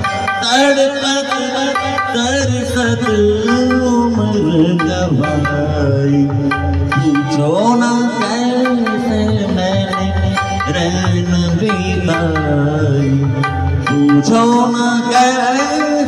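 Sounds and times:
man singing into microphone: 0.0s - 16.0s
recorded accompaniment with drums: 0.0s - 16.0s.

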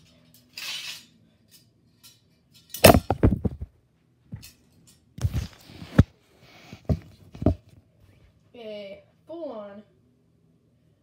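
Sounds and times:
loud thuds and knocks: 2.8s - 3.7s.

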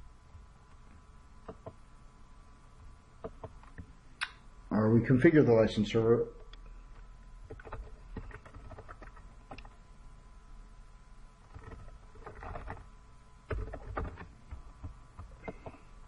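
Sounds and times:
keyboard typing: 6.9s - 9.8s, 11.5s - 12.9s, 13.5s - 15.9s.

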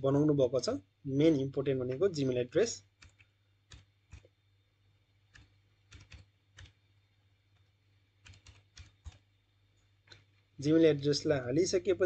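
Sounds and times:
keyboard typing: 2.8s - 4.4s, 5.3s - 6.8s, 7.5s - 9.3s.

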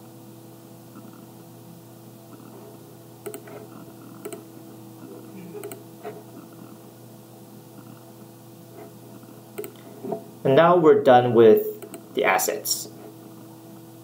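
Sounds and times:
faint electrical hum: 0.0s - 14.0s
computer mouse clicks: 3.2s - 4.5s, 5.6s - 6.2s, 9.6s - 9.9s, 11.8s - 12.1s.

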